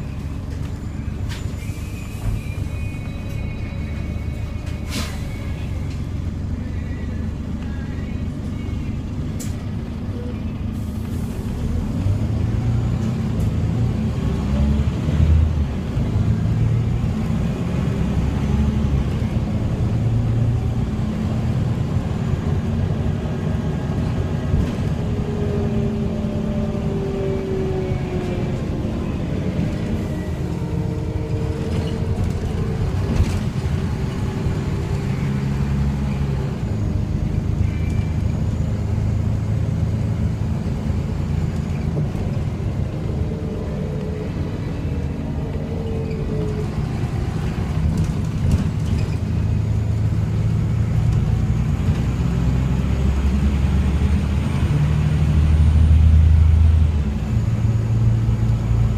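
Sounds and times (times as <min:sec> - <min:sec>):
bus engine rumble: 0:00.0 - 0:58.9.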